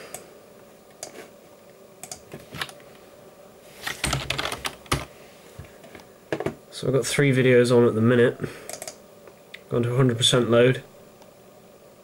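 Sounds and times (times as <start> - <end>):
cpu cooler fan hum: 0.0 - 12.0
mouse clicks: 2.0 - 2.2, 8.7 - 9.0
keyboard keystrokes: 2.0 - 2.8, 8.7 - 9.0.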